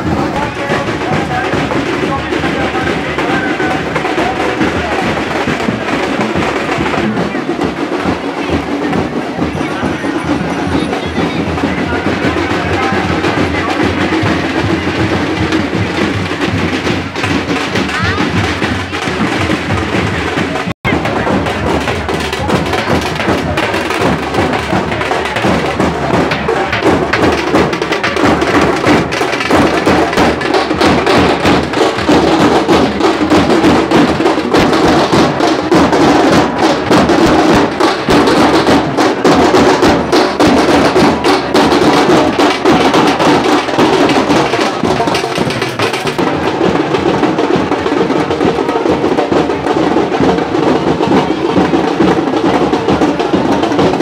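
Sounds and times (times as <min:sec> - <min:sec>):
drums beaten with sticks: 0:00.0 - 0:54.0.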